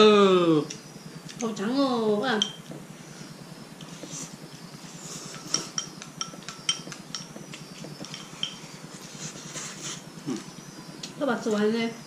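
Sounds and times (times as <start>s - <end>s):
utensils clinking on porcelain bowls: 2.3s - 2.7s, 5.2s - 9.0s.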